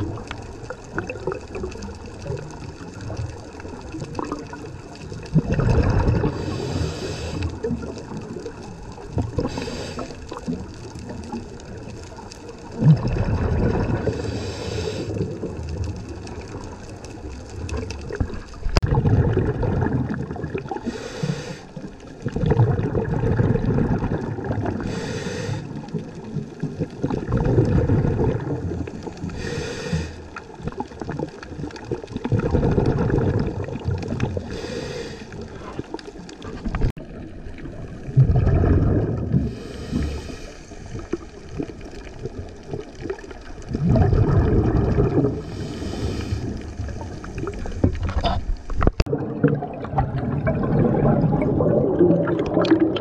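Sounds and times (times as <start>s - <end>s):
exhaled bubbles bursting: 0.0s - 21.1s, 21.7s - 53.0s
regulator hissing inhale: 6.4s - 7.6s, 9.4s - 10.3s, 14.1s - 15.2s, 20.8s - 21.8s, 24.8s - 25.7s, 29.2s - 30.3s, 34.4s - 35.8s, 39.5s - 41.0s, 45.4s - 47.2s.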